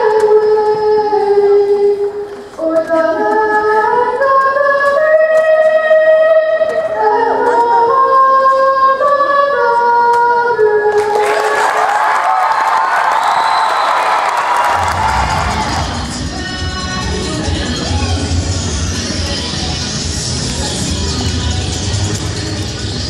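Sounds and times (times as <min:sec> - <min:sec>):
girl singing into a microphone: 0:00.0 - 0:11.0
crowd cheering: 0:10.9 - 0:16.4.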